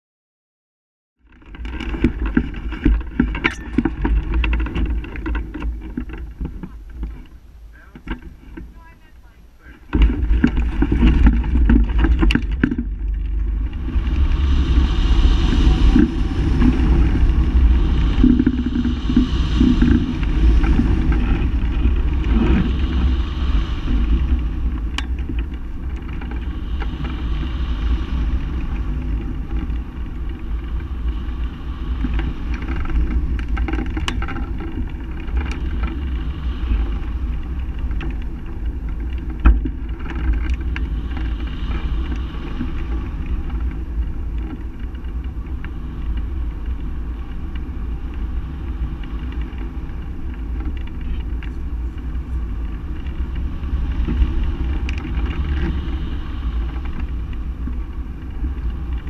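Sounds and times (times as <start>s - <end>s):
wind buffeting microphone: 1.2s - 59.0s.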